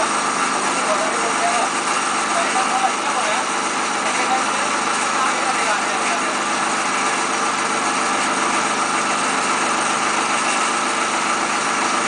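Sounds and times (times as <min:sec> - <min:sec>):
machine drone: 0:00.0 - 0:12.0.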